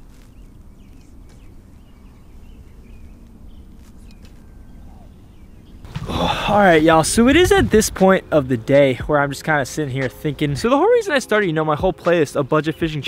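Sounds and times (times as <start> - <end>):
faint bird chirps: 0.0 - 5.9
wind on microphone: 5.9 - 8.1.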